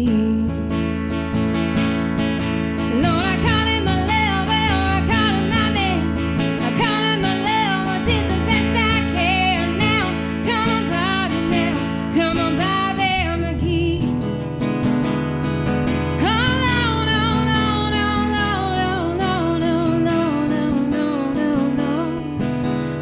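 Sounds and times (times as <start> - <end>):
guitar accompaniment: 0.0 - 23.0
person singing: 2.8 - 14.2, 16.1 - 22.4.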